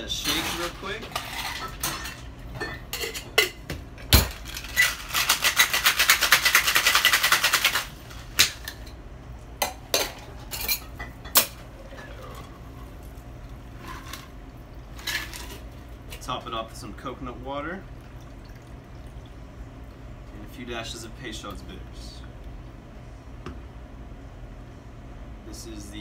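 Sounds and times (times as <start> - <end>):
ice rattling in cocktail shaker: 4.4 - 7.9
drink pouring into glass: 11.6 - 14.9, 17.9 - 20.0.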